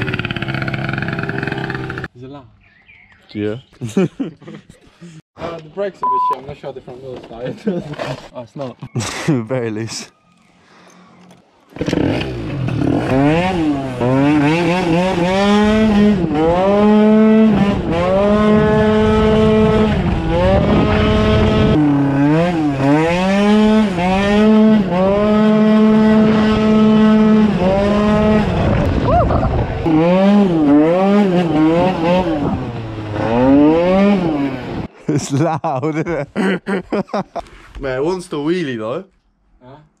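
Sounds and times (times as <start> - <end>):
small motorbike engine revving: 0.0 - 2.1, 11.7 - 34.9.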